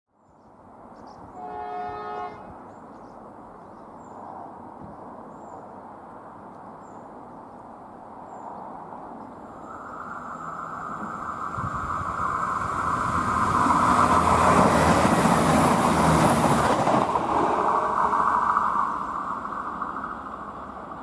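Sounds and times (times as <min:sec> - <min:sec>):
train horn: 0:01.4 - 0:02.6, 0:17.3 - 0:18.4
train rumble: 0:08.6 - 0:21.0.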